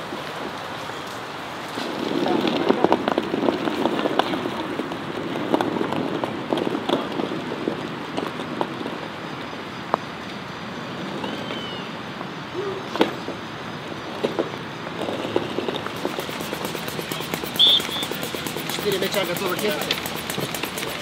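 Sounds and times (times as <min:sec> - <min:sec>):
rain on pavement: 0:00.0 - 0:10.4, 0:14.8 - 0:21.0.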